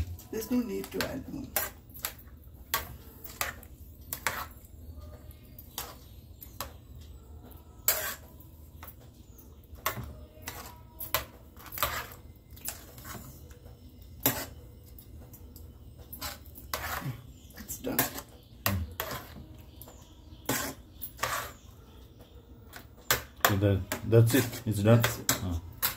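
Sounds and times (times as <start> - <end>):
metal spoon scraping metal pot: 0.5 - 4.7, 7.8 - 8.8, 9.8 - 13.5, 14.1 - 14.7, 16.0 - 21.8, 22.7 - 25.9.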